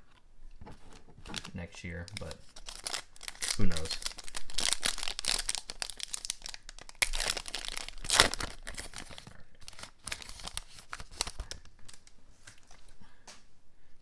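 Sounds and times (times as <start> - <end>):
cards rustling: 0.7 - 12.8
foil wrapper crinkling and tearing: 1.3 - 12.1.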